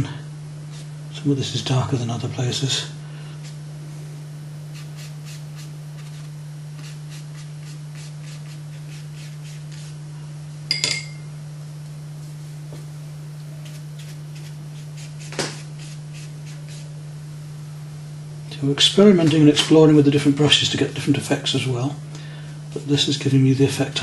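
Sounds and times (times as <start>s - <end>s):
steady low hum: 0.0s - 24.0s
sharp clink with ring: 10.7s - 11.3s.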